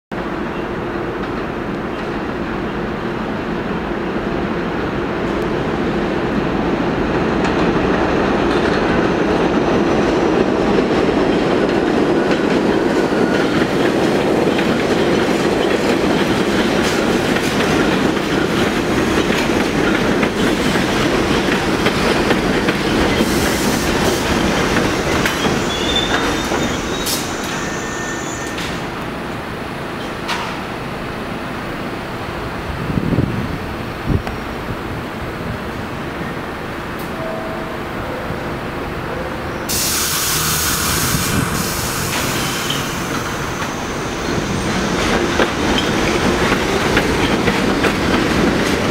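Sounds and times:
brief high-pitched squeals: 25.4 - 28.8.

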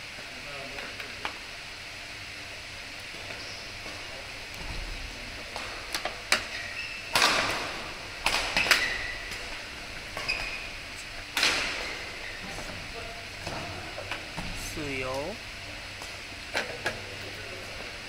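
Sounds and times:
shoe squeaks on court floor: 6.5 - 7.2, 10.2 - 10.8.

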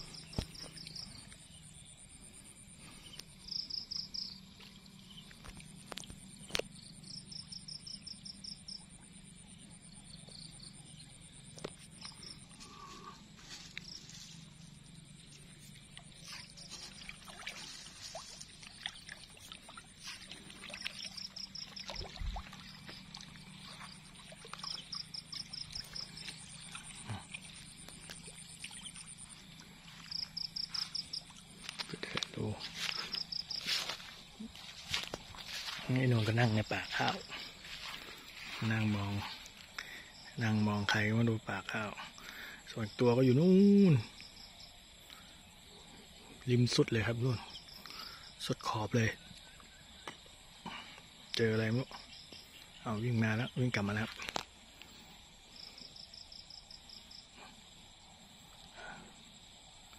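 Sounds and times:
frogs calling: 0.0 - 59.9
high insect trill: 0.0 - 59.9.

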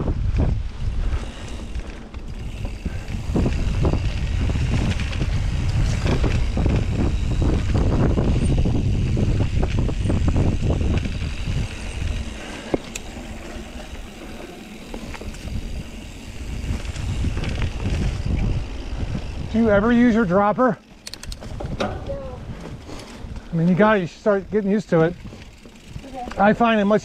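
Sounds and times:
bike rattling and knocking: 0.0 - 27.0
wind rushing over microphone: 0.0 - 27.0
sharp click: 21.0 - 21.4.

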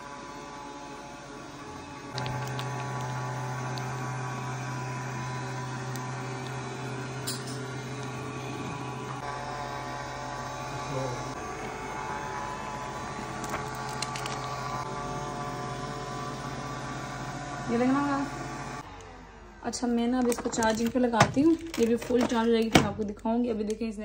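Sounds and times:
robot vacuum motor whirring: 2.1 - 7.2.

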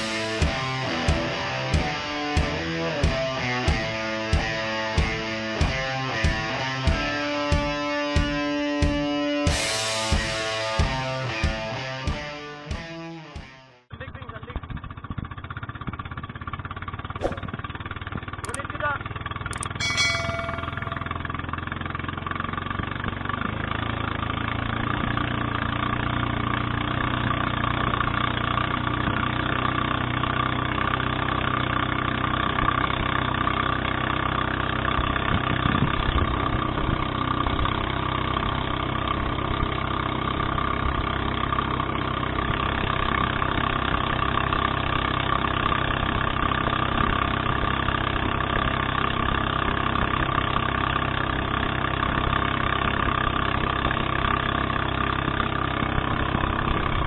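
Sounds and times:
small boat motor running: 14.0 - 57.0
click: 18.4 - 18.6, 19.6 - 19.8
short chime: 19.6 - 21.5.

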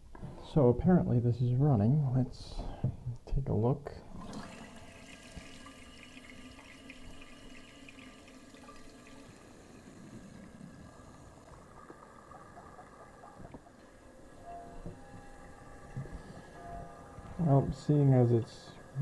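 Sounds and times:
water hissing into toilet tank: 4.2 - 14.4.

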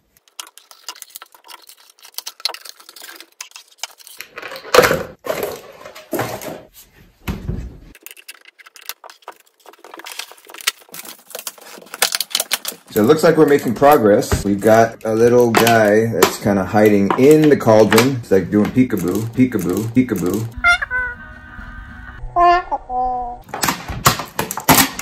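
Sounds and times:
cardboard and plastic wrap rustling: 0.0 - 15.9.

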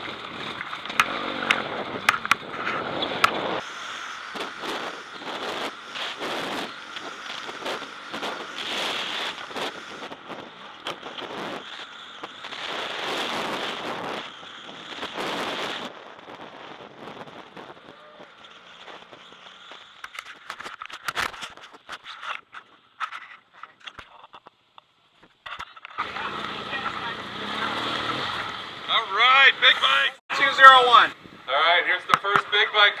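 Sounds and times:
wind rush: 0.0 - 19.8
motorcycle engine: 0.0 - 20.8, 25.8 - 30.9
clicks and scrapes: 18.4 - 26.0.

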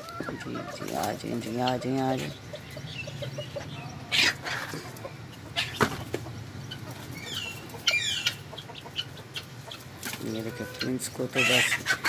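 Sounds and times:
chickens clucking: 0.0 - 12.0
high falling bird calls: 0.0 - 12.0.

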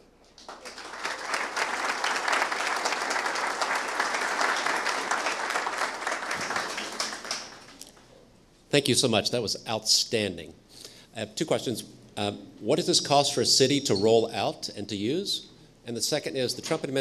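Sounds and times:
audience applauding: 0.4 - 8.0.

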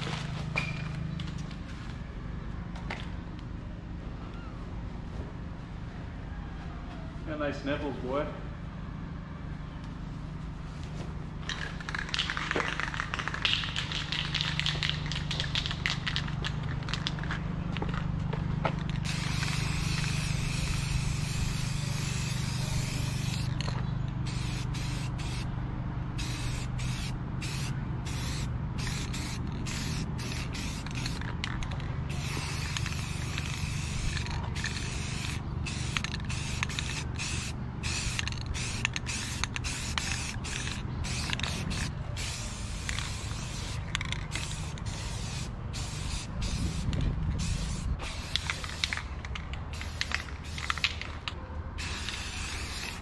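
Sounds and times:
spray paint cans hissing: 11.4 - 18.0, 18.7 - 25.5, 26.2 - 53.0.

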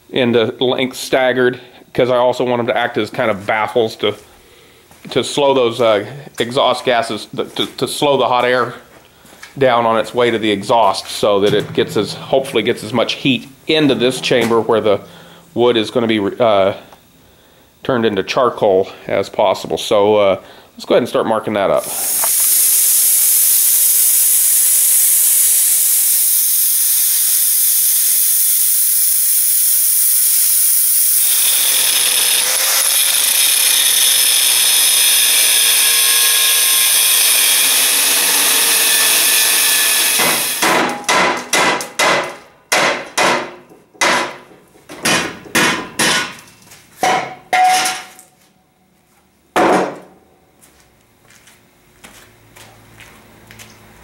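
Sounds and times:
ringing metal knocks: 11.4 - 16.2, 47.0 - 48.1
plasma cutter hissing: 21.8 - 32.3
angle grinder cutting metal: 21.8 - 40.6.

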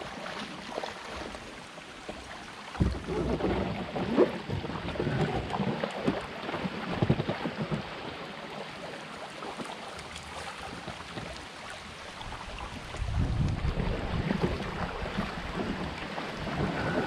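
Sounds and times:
water lapping around canoe hull: 0.0 - 17.0
wind gusting on microphone: 12.3 - 17.0.

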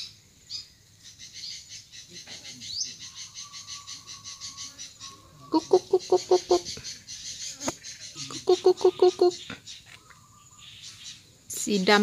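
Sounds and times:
insects chirring: 0.0 - 12.0
repeated kuk calls: 2.0 - 10.1.

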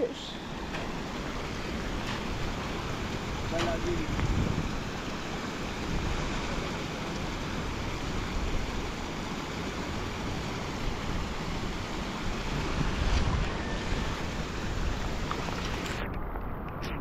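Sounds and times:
running water: 0.0 - 16.5
wind buffeting microphone: 0.8 - 6.6, 10.0 - 17.0.

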